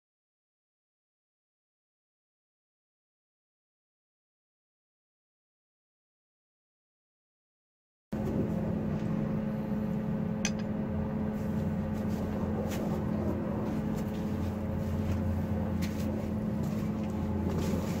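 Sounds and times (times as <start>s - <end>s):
machine humming: 8.2s - 18.0s.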